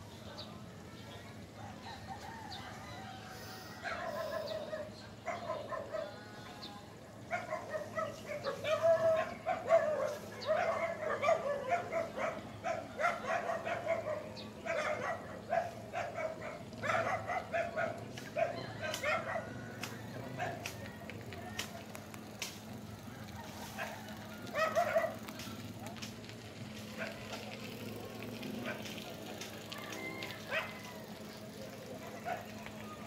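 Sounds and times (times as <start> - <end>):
low steady hum: 2.5 - 33.0
dog barking: 3.8 - 6.2, 7.3 - 19.6, 20.4 - 20.7, 23.7 - 25.2, 27.0 - 27.4, 28.6 - 28.9, 30.5 - 30.9, 32.2 - 32.5.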